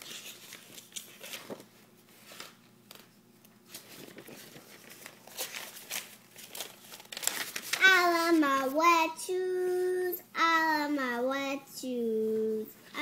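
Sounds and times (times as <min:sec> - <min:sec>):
paper pages rustling: 0:00.0 - 0:08.5.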